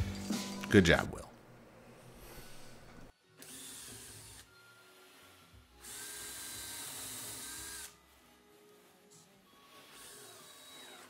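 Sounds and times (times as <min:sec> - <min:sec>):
cordless drill driving a screw: 0:03.4 - 0:08.0, 0:09.2 - 0:11.0.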